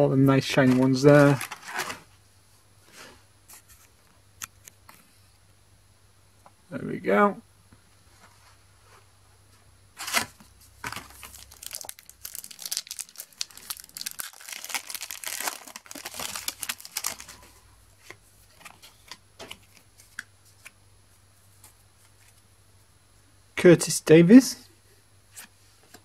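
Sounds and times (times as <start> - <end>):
cards rustling: 0.4 - 2.0, 10.0 - 20.7
wrapper crinkling and tearing: 10.0 - 17.5.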